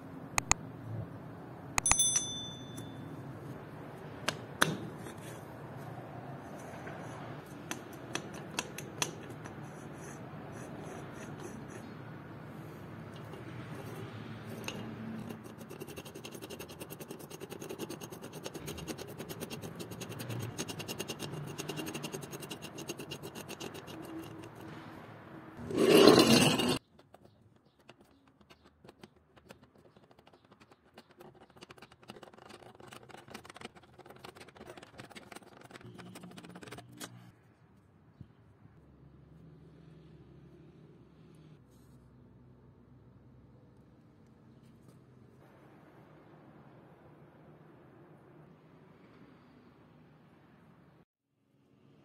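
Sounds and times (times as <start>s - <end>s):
jack scraping on concrete: 25.6s - 26.9s, 30.2s - 37.3s.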